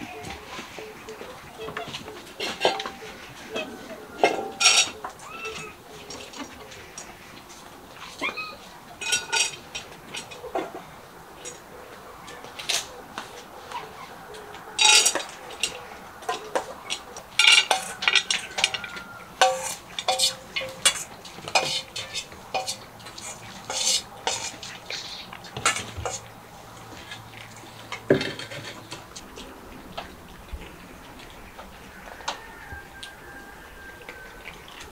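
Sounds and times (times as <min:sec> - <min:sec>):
metal bowls clinking: 0:02.3 - 0:05.2, 0:09.0 - 0:10.7, 0:14.8 - 0:24.7.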